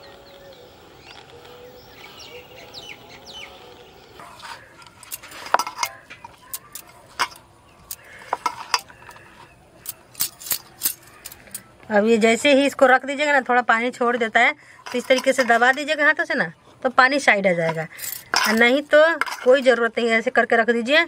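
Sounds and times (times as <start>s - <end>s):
faint bird chirps: 0.0s - 4.7s
clinks against metal bowl: 17.7s - 19.8s.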